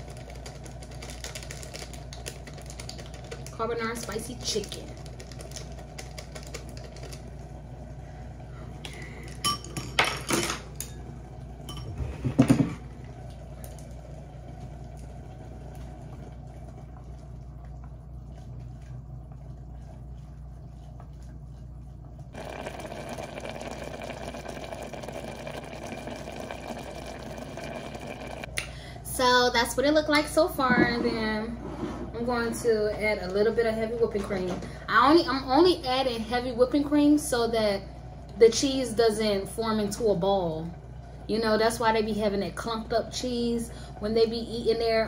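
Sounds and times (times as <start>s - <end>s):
packet crinkling: 0.1s - 3.6s, 4.6s - 7.3s.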